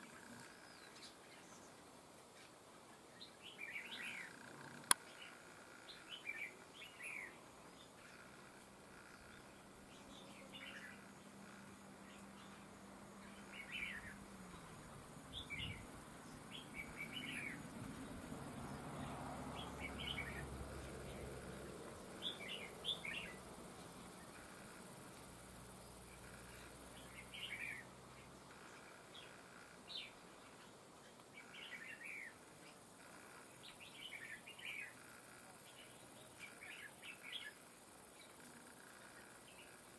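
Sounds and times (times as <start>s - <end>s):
bird chirping calls: 3.2s - 39.9s.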